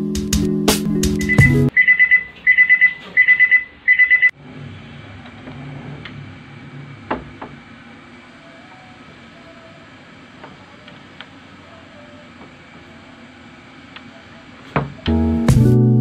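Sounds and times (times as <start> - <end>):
electronic alarm beeping: 1.2 - 4.4.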